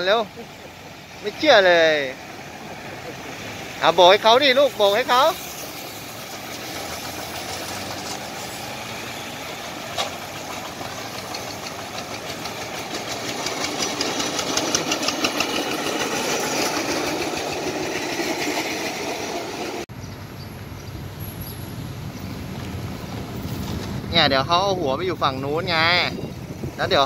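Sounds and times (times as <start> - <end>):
diesel engine knocking rhythmically: 9.1 - 19.8.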